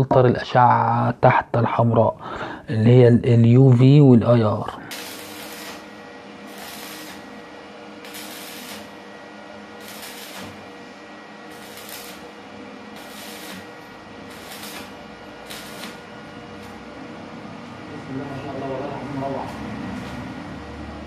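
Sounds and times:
arc welding sizzling and crackling: 0:04.8 - 0:17.1.

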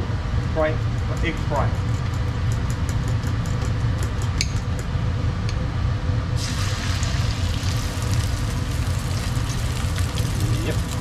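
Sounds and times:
steady low rumble: 0:03.6 - 0:11.0
eggs sizzling in a frying pan: 0:06.4 - 0:11.0.

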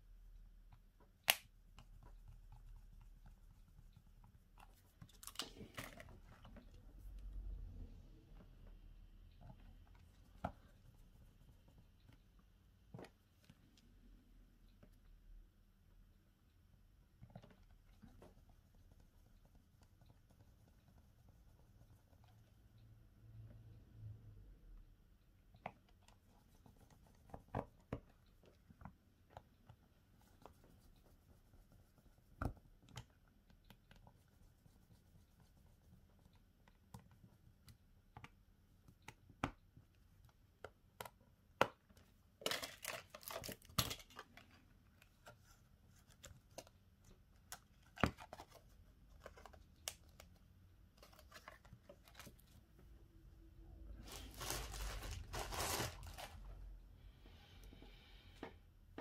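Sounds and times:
rustling scrape: 0:54.0 - 0:56.6.

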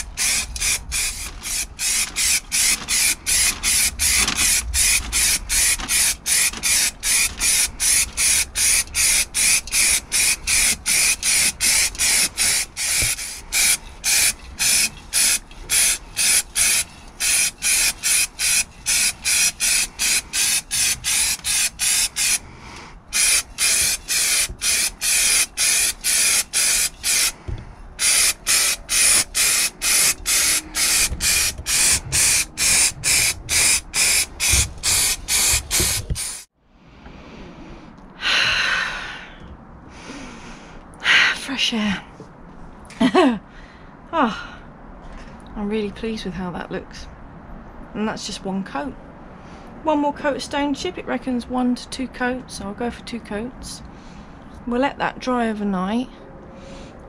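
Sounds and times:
aerosol spray hissing bursts: 0:04.8 - 0:22.4, 0:23.2 - 0:27.3, 0:28.0 - 0:36.5.

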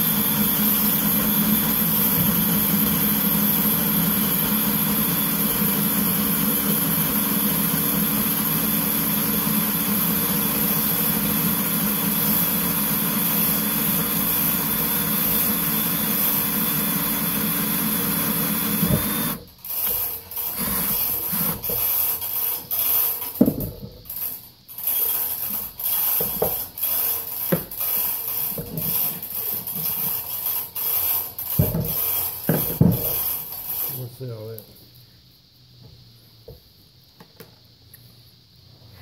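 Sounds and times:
electric drill running: 0:00.0 - 0:23.4.

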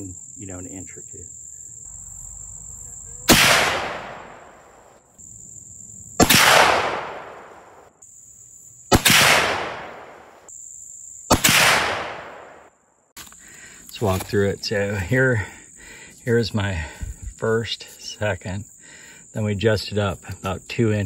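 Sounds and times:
rifle shots: 0:03.3 - 0:04.9, 0:06.2 - 0:07.9, 0:08.9 - 0:10.4, 0:11.3 - 0:12.7.

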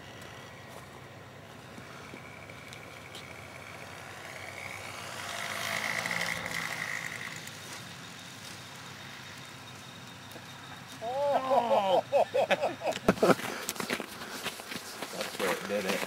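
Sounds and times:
model plane motor and propeller whine: 0:00.0 - 0:11.0, 0:15.1 - 0:16.0.

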